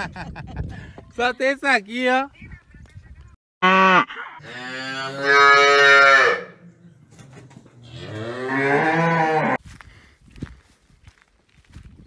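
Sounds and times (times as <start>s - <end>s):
cattle mooing: 3.6s - 6.6s, 7.8s - 9.6s.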